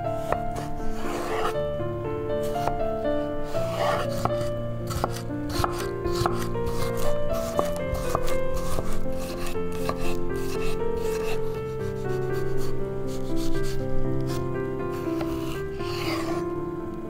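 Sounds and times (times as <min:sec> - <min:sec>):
background music with held notes: 0:00.0 - 0:17.0
rough rubbing and scraping: 0:00.2 - 0:01.6, 0:03.4 - 0:12.6, 0:13.4 - 0:16.4.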